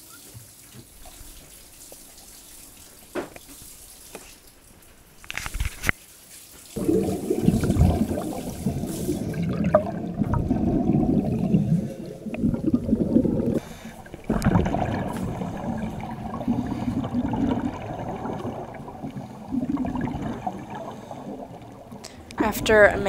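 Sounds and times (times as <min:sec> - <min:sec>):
muffled underwater bubbles gurgling: 0:06.8 - 0:23.0.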